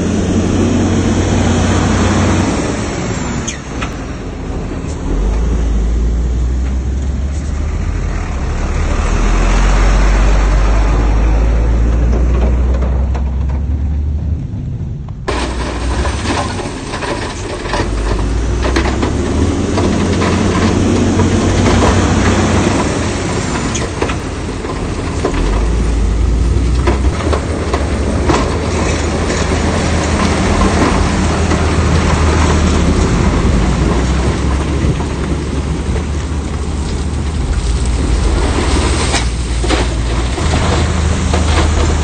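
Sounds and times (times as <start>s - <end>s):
diesel engine running under load: 0.0s - 42.0s
metallic clanks of tracks and rock: 15.1s - 42.0s.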